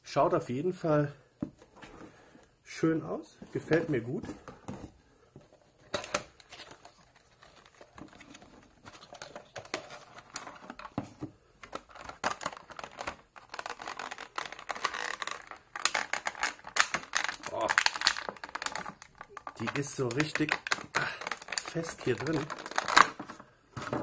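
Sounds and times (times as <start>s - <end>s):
plastic packaging crinkling: 11.6s - 24.0s.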